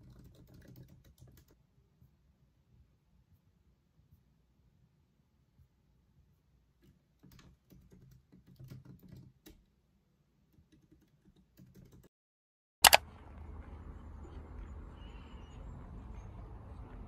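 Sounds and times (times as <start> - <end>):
soft keyboard typing: 0.0 - 1.6, 6.8 - 9.6, 10.5 - 12.1, 12.8 - 13.0.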